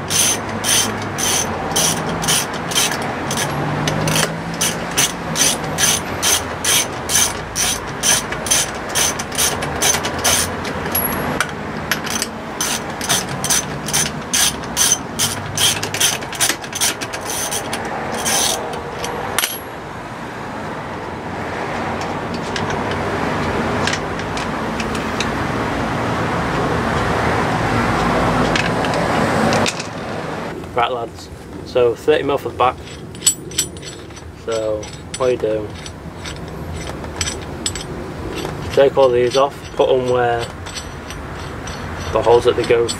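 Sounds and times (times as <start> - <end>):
ratchet wrench clicking: 0.0 - 19.6, 32.8 - 42.9.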